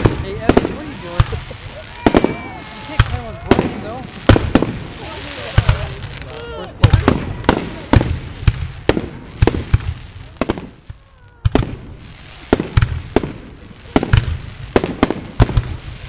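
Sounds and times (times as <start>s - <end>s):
fireworks bursting with loud bangs: 0.0s - 16.0s.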